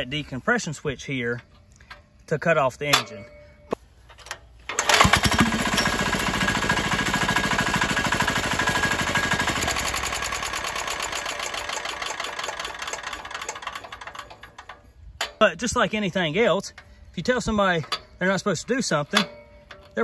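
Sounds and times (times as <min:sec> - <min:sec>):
diesel engine running and spinning down: 0:04.8 - 0:14.5.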